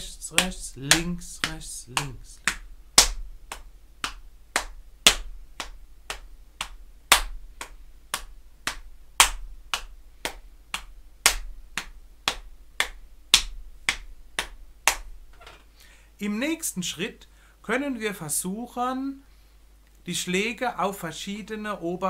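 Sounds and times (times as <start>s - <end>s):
hands slapping on thighs: 0.0s - 15.1s.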